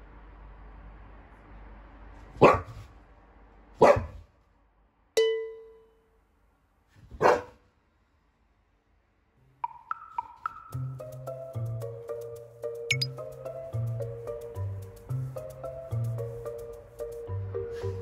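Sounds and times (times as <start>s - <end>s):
dog barking: 2.3s - 2.9s, 3.8s - 4.3s, 7.1s - 7.6s
ringing ping: 5.2s - 6.0s, 12.9s - 13.1s.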